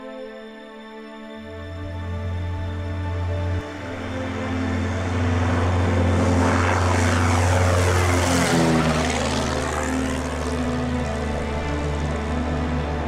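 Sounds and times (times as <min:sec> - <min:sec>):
propeller plane engine drone: 0:00.0 - 0:13.0.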